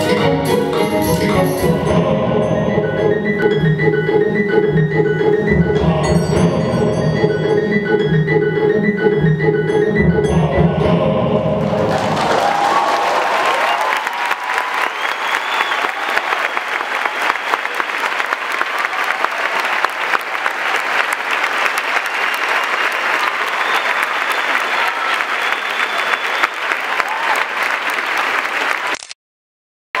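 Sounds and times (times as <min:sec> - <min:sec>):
audience applauding: 0:11.7 - 0:29.1.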